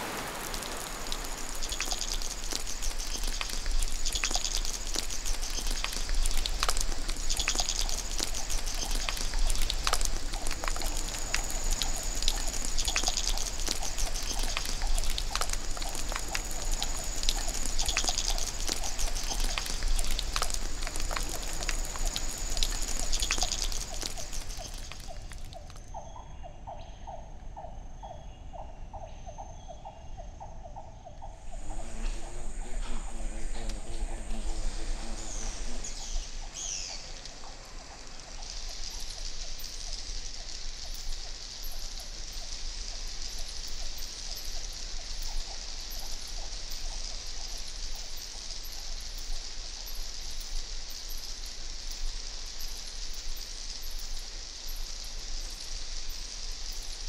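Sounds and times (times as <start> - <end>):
heavy rain pattering and dripping: 0.0 - 25.9, 31.5 - 57.0
high insect drone: 0.0 - 25.9, 31.3 - 57.0
low chirping call: 0.0 - 39.9.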